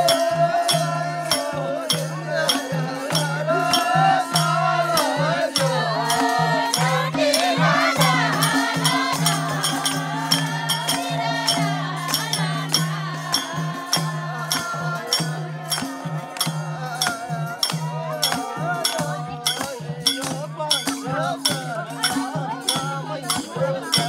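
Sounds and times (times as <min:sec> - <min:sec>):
rattling percussion: 0:00.0 - 0:24.0
hand clapping: 0:01.3 - 0:24.0
person singing: 0:10.3 - 0:24.0.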